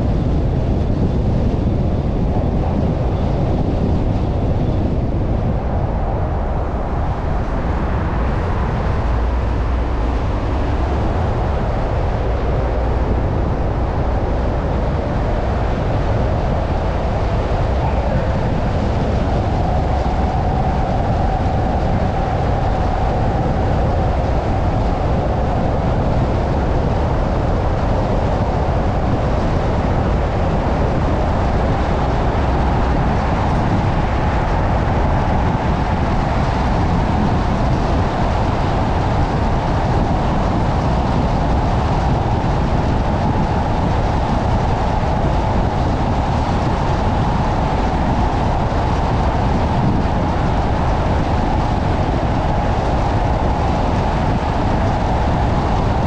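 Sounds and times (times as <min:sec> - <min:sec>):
faint steady whine: 0:00.0 - 0:56.0
wind noise: 0:00.0 - 0:56.0.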